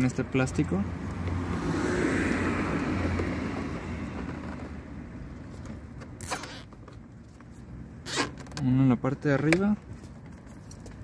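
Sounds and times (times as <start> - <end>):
vehicle passing: 0.1 - 5.4.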